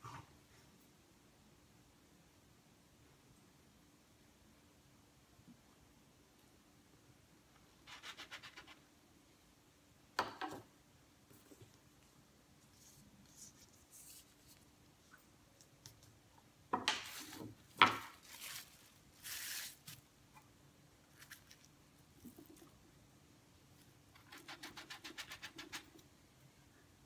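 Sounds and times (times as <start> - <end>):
faint steady hum: 0.0 - 27.0
plastic wrap crinkling: 17.0 - 20.0.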